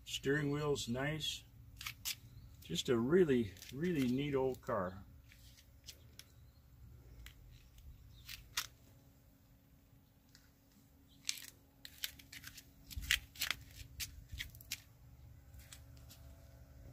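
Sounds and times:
faint steady hum: 0.0s - 16.9s
camera handling clicks and rustles: 3.5s - 4.2s, 7.1s - 8.8s.

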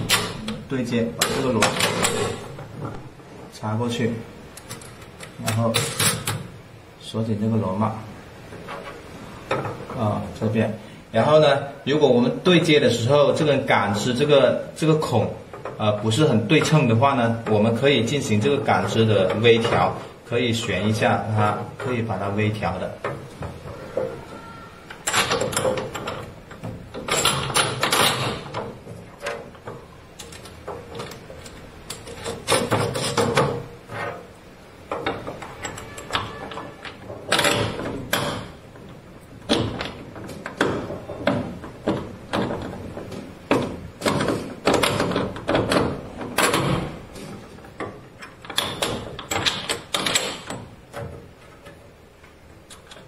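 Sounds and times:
metal rods rubbing and clicking: 15.0s - 53.0s.

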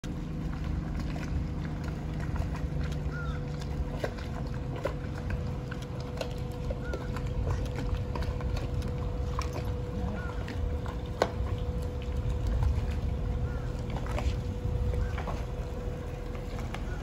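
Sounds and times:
boat engines idling: 0.0s - 17.0s.

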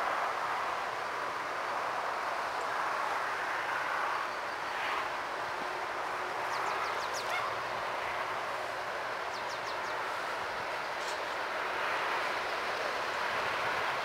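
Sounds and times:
distant steam locomotive rush: 0.0s - 14.0s.

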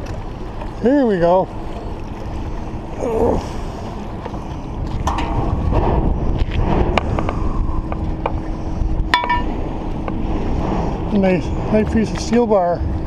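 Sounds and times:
wind buffeting microphone: 0.0s - 13.0s
metal clinks and knocks: 9.1s - 9.5s.

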